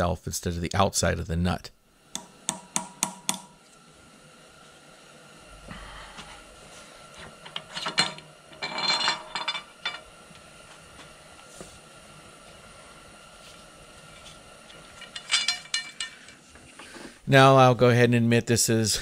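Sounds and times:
metal scraping: 7.1 - 10.1, 13.4 - 17.2.

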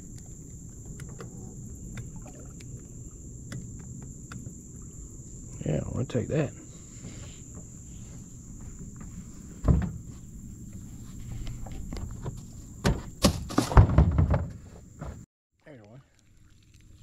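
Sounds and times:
knocks and thumps in boat: 7.0 - 10.3, 11.3 - 15.3.

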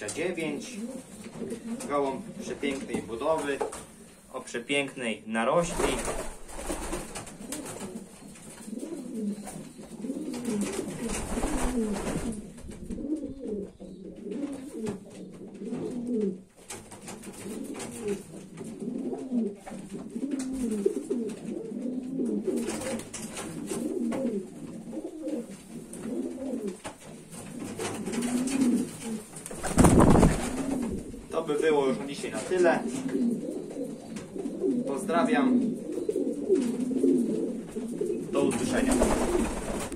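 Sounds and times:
pigeons cooing: 0.0 - 4.3, 5.8 - 39.9.

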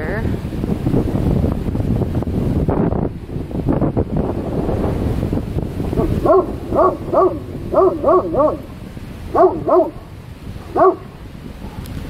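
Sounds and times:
wind rumble on microphone: 0.0 - 12.0
animal barking: 6.0 - 11.8.

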